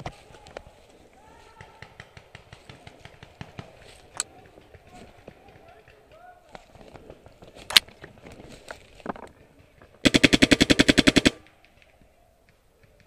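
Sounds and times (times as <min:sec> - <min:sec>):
paintball marker firing: 0:10.0 - 0:11.9.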